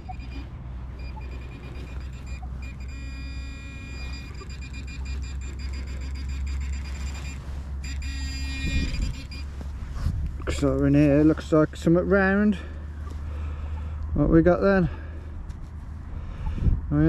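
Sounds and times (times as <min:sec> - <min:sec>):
steady low rumble: 0:00.0 - 0:17.0
metal detector pinpointer buzzing: 0:01.0 - 0:09.6.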